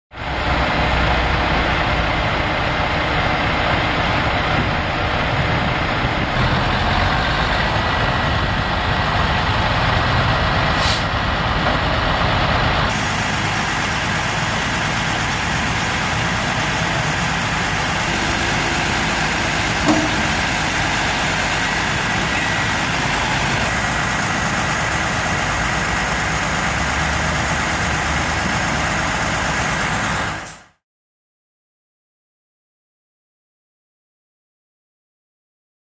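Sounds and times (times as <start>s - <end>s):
diesel engine running: 0.1s - 30.8s
short knock: 19.8s - 20.5s.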